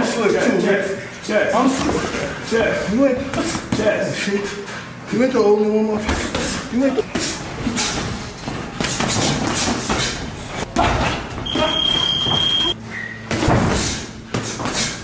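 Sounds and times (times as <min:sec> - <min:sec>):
gym noise: 0:05.9 - 0:15.0.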